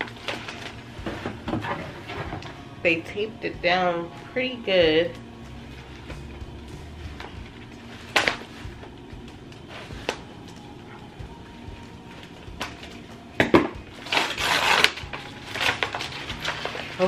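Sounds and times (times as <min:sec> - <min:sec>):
paper and plastic crinkling: 0:00.0 - 0:02.6, 0:13.9 - 0:17.0.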